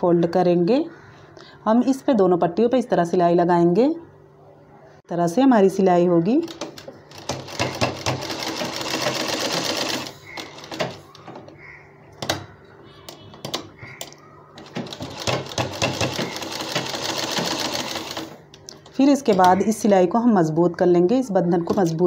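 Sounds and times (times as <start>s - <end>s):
sewing machine stitching: 6.5s - 11.0s, 14.6s - 18.4s
sewing machine clicks: 13.4s - 18.4s.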